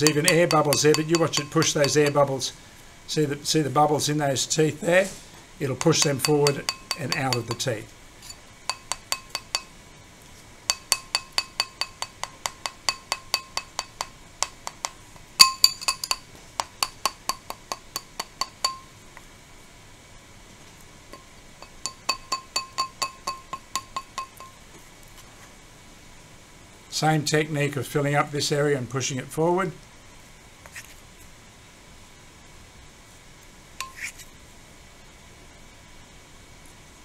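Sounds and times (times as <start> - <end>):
metal spoon tapping on tray: 0.0 - 2.3, 5.8 - 7.7, 8.7 - 9.7, 10.7 - 18.9, 21.2 - 24.6.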